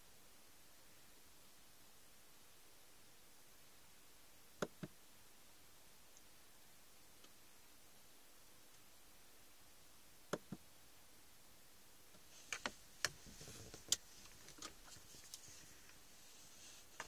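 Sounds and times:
faint rustling: 0:12.1 - 0:17.0.

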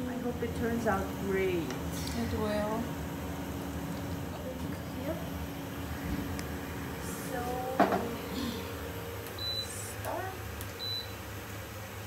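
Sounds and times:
steady low hum: 0:00.0 - 0:12.0
single knock: 0:07.8 - 0:08.1.

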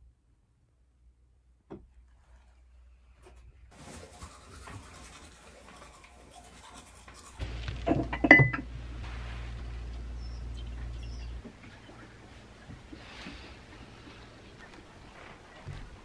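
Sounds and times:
toothbrush scrubbing teeth: 0:03.7 - 0:07.5
low hum: 0:06.0 - 0:16.0
mug and teapot clinking: 0:07.8 - 0:08.7.

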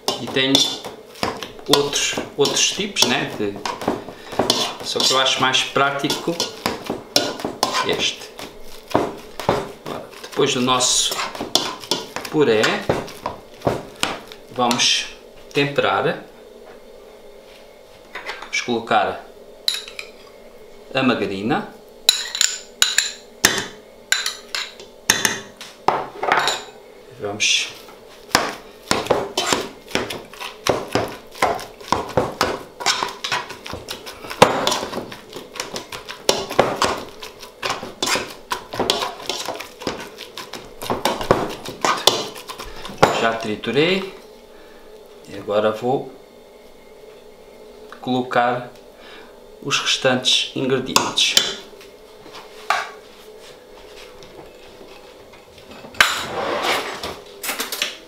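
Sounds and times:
potato masher knocking in metal pot: 0:00.0 - 0:08.2, 0:28.3 - 0:43.4.

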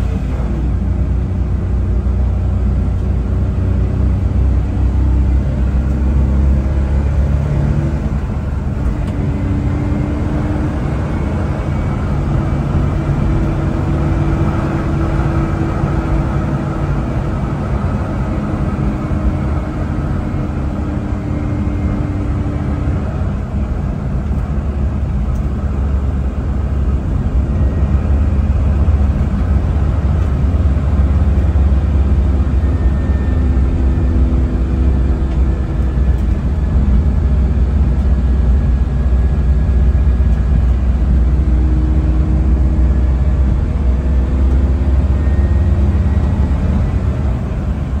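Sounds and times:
truck engine drone in cab: 0:00.0 - 0:48.0
faint whine: 0:10.4 - 0:48.0.

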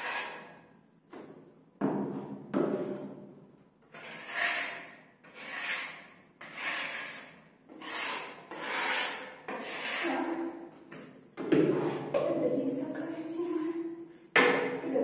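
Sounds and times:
spatula scraping plaster on wall: 0:00.0 - 0:00.7, 0:03.8 - 0:12.2.

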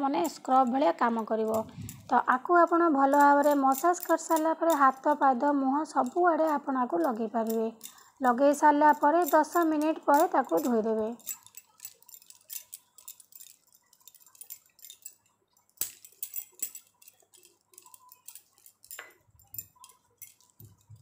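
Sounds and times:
bangles clinking: 0:00.0 - 0:21.0.

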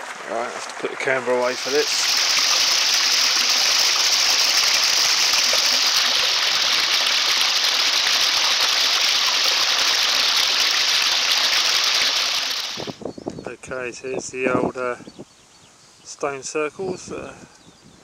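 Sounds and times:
stream splashing over rocks: 0:00.0 - 0:13.0.

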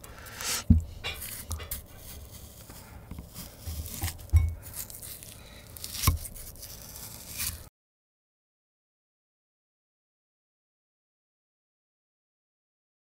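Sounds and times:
plastic spoon scraping glass bowl: 0:00.2 - 0:07.7
soft thumps: 0:00.6 - 0:01.8, 0:03.1 - 0:04.7.

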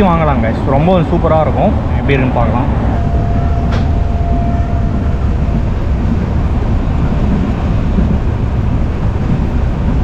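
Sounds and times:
train wheels rumbling on track: 0:00.0 - 0:10.0
faint steady whine: 0:01.0 - 0:07.1.

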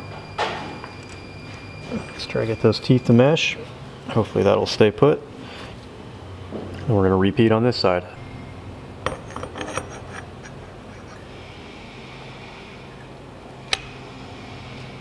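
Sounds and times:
metal parts rubbing: 0:09.1 - 0:11.3.

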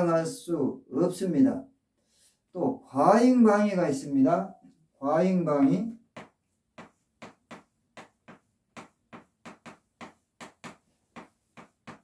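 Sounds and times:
chalk tapping and scraping on blackboard: 0:05.6 - 0:12.0.

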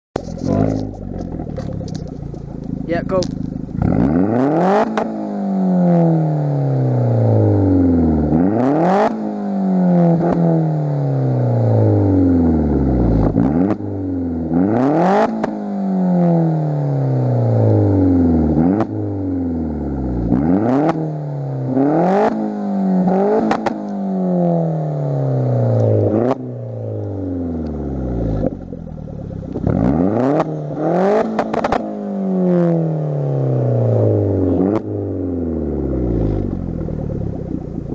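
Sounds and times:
car engine revving: 0:00.2 - 0:37.9.

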